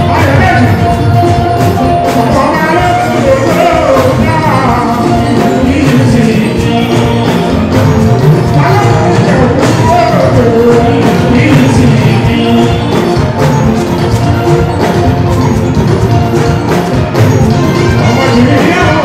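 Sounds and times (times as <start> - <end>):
man singing through microphone: 0.0 - 1.2, 2.0 - 13.5, 18.0 - 19.0
live band playing: 0.0 - 19.0.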